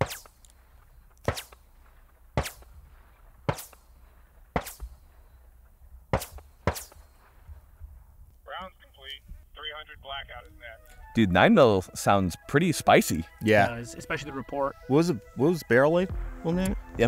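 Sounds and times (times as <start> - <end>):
sharp single gunshots: 0.0 - 0.5, 1.2 - 5.2, 6.1 - 7.4.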